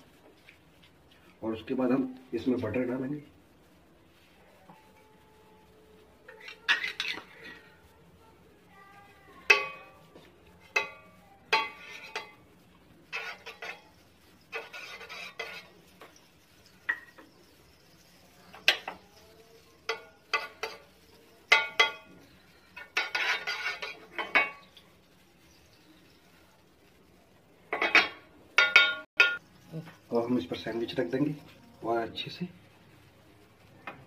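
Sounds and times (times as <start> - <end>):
spoon scraping pan: 6.2 - 7.9, 9.0 - 26.4.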